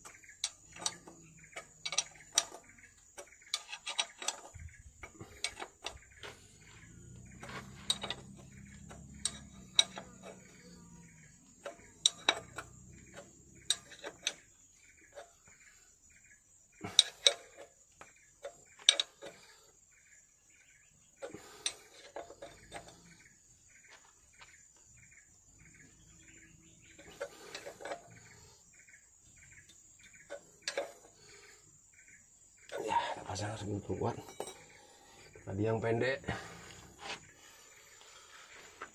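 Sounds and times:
insect trill: 0.0s - 38.8s
wrench clinking on metal: 7.4s - 10.9s.

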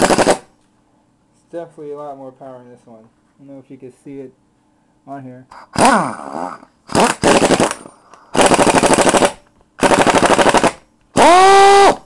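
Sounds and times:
air impact wrench rattling: 0.0s - 0.5s, 6.9s - 12.0s
air motor whine: 5.6s - 12.0s.

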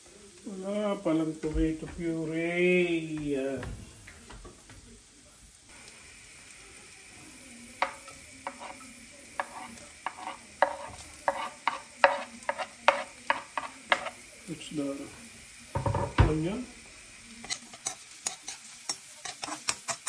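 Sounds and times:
faint sizzle of frying: 0.0s - 20.0s
spoon scraping a pan: 7.8s - 14.2s, 17.3s - 20.0s.

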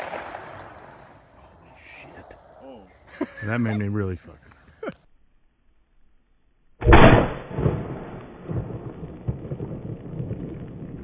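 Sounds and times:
rolling rumble with cracks: 0.0s - 2.6s, 7.3s - 11.0s
shotgun blast: 6.8s - 8.9s.

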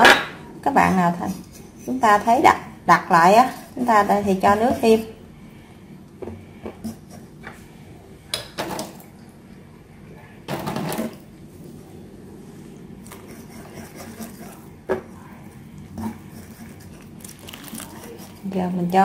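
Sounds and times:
whisk stirring batter: 13.0s - 19.0s.

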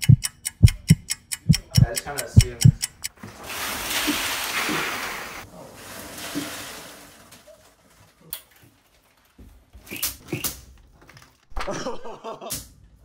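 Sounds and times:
short clicks: 0.0s - 3.1s
packing peanuts pouring onto floor: 3.2s - 9.5s.

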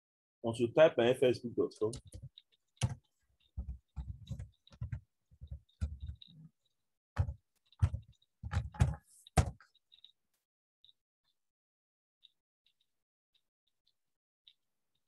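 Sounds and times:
computer keyboard typing: 1.8s - 6.3s.

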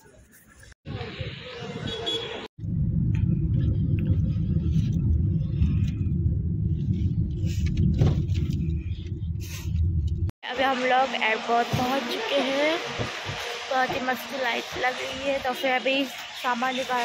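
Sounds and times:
car driving rumble from inside: 2.7s - 10.4s.

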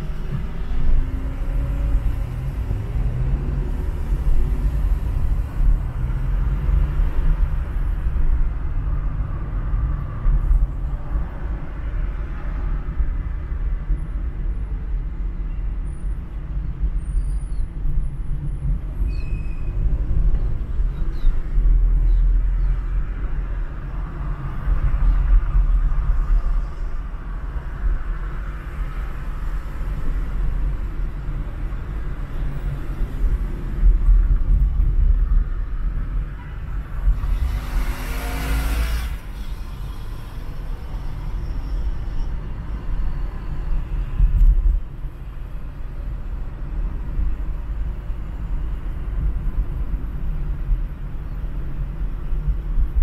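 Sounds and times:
car driving in traffic: 0.0s - 53.0s.

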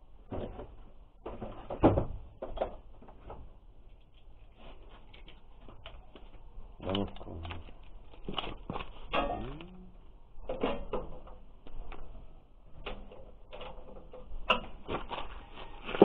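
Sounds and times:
short pitched sounds: 9.2s - 10.0s.

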